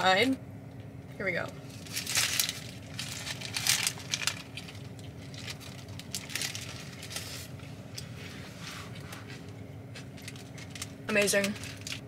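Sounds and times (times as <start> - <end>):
paper wrapper crinkling: 1.6 - 7.7, 8.8 - 12.0
lettuce crunching: 1.8 - 7.5.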